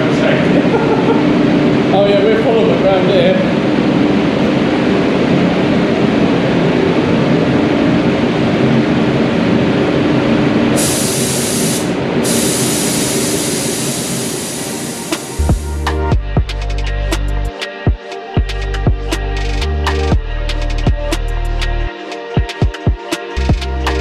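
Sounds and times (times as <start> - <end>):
airflow rush with low hum: 0.0 - 16.2
spray gun air hiss: 10.8 - 15.8.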